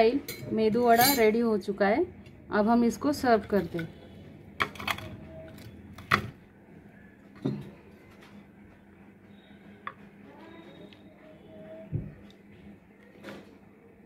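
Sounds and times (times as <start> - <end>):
plates and ladle clinking: 0.3 - 1.4.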